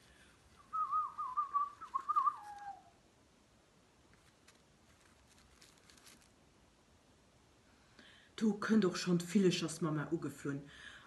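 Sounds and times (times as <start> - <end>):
person whistling trilling call: 0.6 - 2.9.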